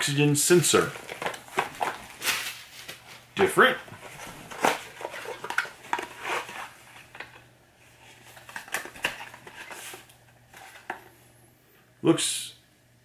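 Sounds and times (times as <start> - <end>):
packaging rustling: 0.7 - 3.3, 3.9 - 11.1.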